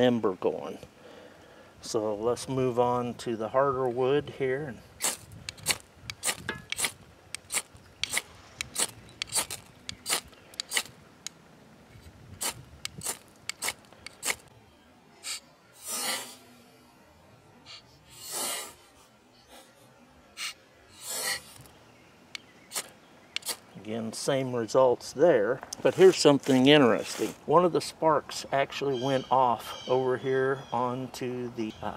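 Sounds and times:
striker scraping ferro rod: 5.0s - 10.9s, 12.4s - 14.5s, 20.4s - 21.7s.

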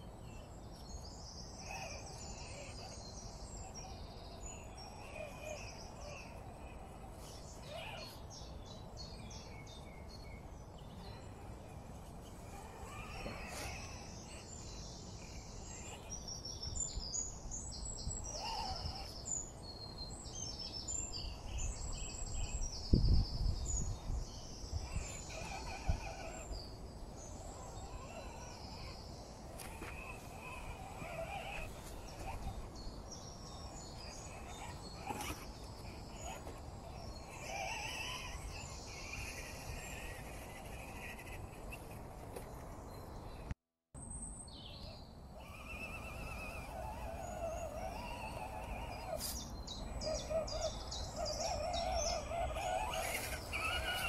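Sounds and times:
birds chirping and trilling: 0.0s - 54.0s.

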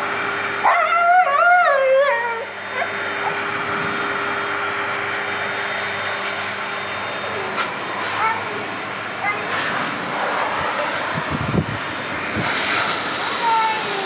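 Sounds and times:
blow dryer rushing: 0.0s - 14.0s
dog howling call: 0.6s - 3.4s.

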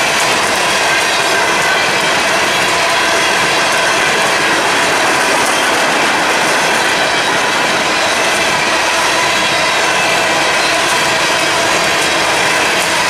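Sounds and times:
train wheels rattling on track: 0.0s - 13.0s.

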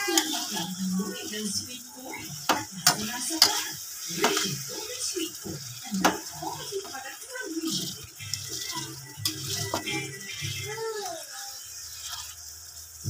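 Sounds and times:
spatula scraping pan: 0.0s - 12.6s
tomatoes sizzling in oil: 0.0s - 13.0s
spatula clacking on pan: 2.3s - 4.6s, 5.6s - 7.0s.

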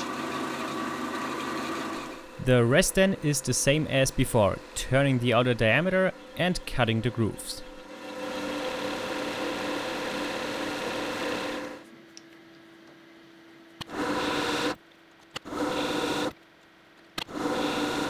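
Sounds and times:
lathe humming: 0.0s - 11.8s
lathe tool cutting plastic: 0.0s - 11.8s, 17.2s - 18.0s.

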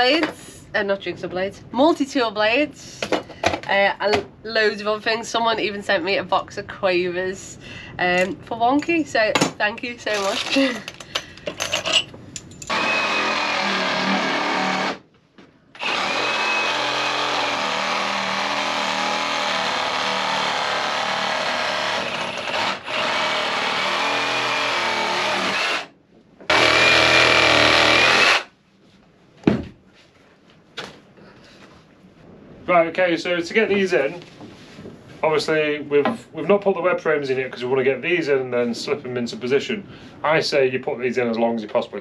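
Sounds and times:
cordless drill spinning nuts: 12.7s - 15.0s, 15.8s - 25.9s, 26.5s - 28.5s.

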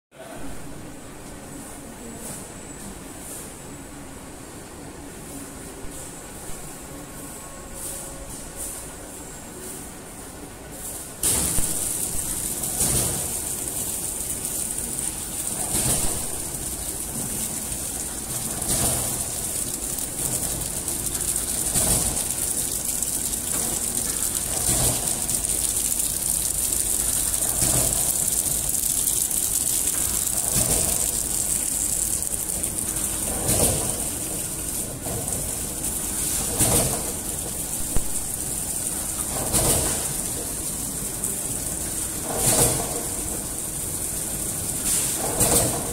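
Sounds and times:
wrapping machine running: 10.7s - 45.9s.

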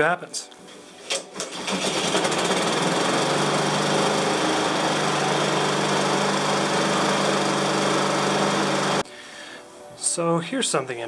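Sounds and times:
lawn mower engine running: 1.4s - 9.0s.

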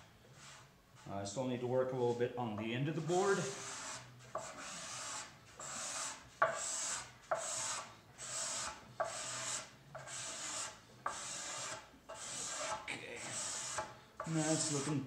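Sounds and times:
card scraper scraping hardwood: 3.3s - 15.0s.

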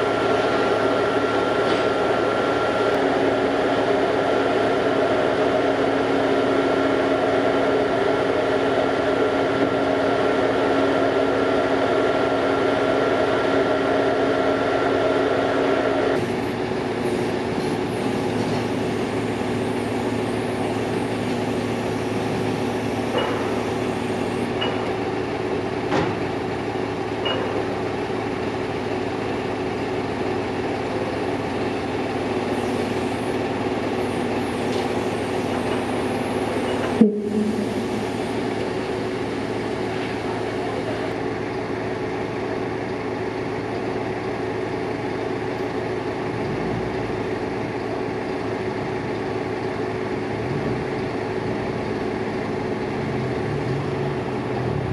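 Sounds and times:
diesel engine running: 0.0s - 54.9s.

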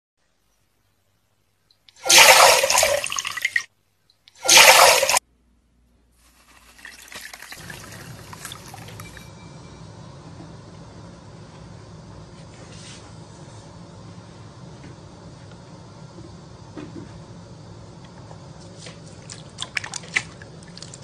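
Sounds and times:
water splashing: 2.0s - 3.7s, 4.4s - 5.2s, 6.5s - 9.2s, 19.2s - 21.0s
water trickling: 6.6s - 9.3s.

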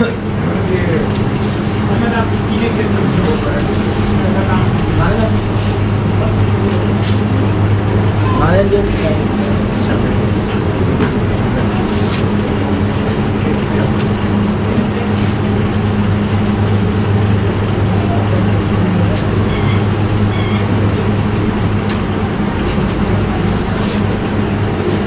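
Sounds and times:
constant rushing noise: 0.0s - 25.0s
deep drone: 0.0s - 25.0s
machine hum: 0.0s - 25.0s
short high-pitched tones: 8.2s - 8.7s, 19.4s - 20.8s.

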